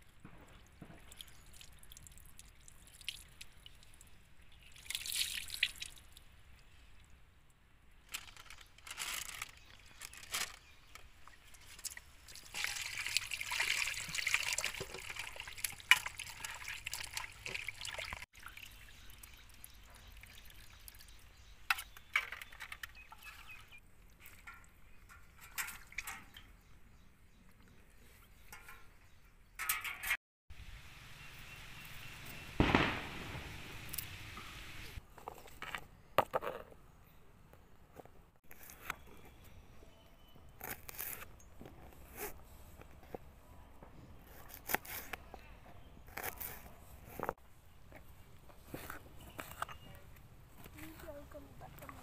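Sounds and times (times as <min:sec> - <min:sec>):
water pouring over chicken: 0:12.3 - 0:21.0.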